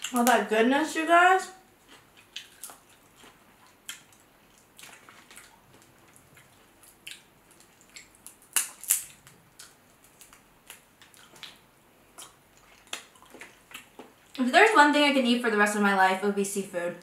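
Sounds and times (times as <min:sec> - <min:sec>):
shells cracking and peeling: 0:06.8 - 0:11.6.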